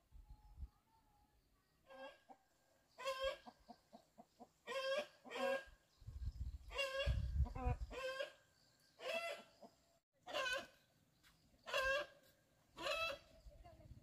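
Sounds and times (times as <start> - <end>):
chickens squawking: 1.9 - 5.8, 6.7 - 8.4, 9.0 - 10.8, 11.6 - 12.2, 12.8 - 13.3.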